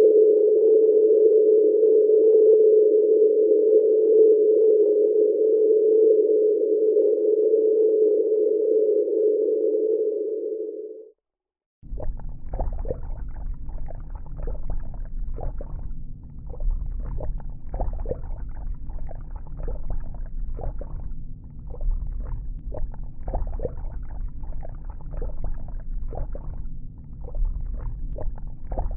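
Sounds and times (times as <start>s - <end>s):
bubbling gurgling: 11.8s - 28.9s
deep rumble: 11.8s - 28.9s.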